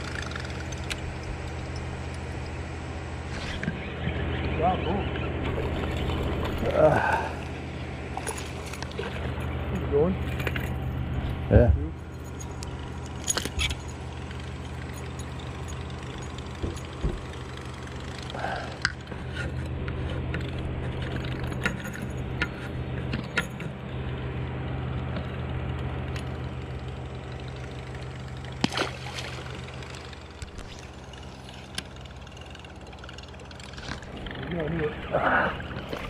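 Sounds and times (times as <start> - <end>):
boat motor humming: 0.0 - 36.0
fish splashing into water: 28.6 - 30.1.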